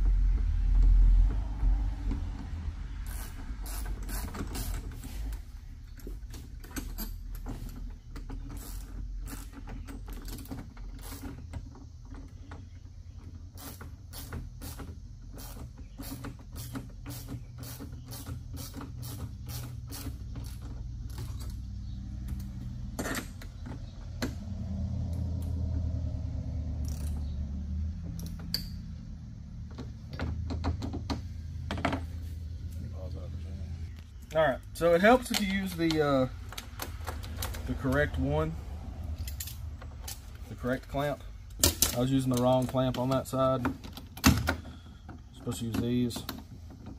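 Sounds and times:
metal clamps clicking and creaking: 3.1s - 24.4s, 26.8s - 27.4s, 39.1s - 46.9s.

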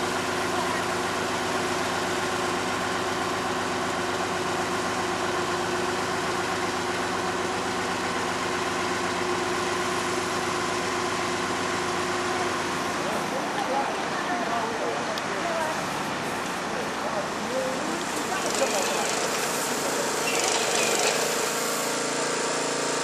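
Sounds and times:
crane diesel engine running: 0.0s - 23.0s.

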